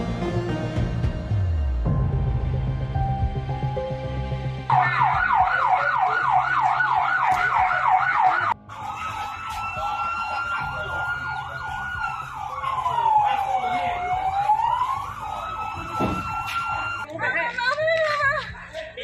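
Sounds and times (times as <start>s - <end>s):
dramatic background music: 0.0s - 5.6s
wail siren high note: 4.7s - 17.0s
siren fast yelp: 4.7s - 17.1s.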